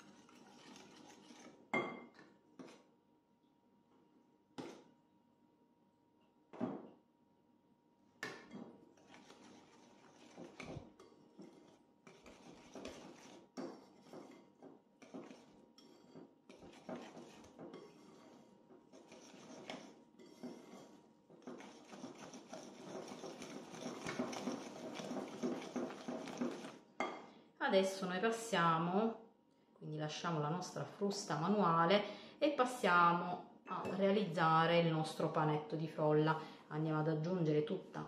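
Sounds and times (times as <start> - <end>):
wire whisk clicking and scraping bowl: 0.0 - 1.6, 9.0 - 26.8.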